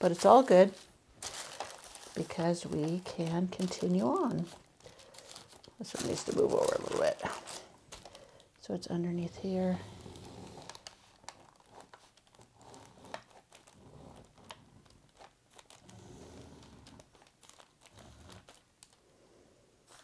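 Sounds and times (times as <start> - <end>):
thin paper sheets rustling: 0.0 - 8.2, 16.9 - 19.0.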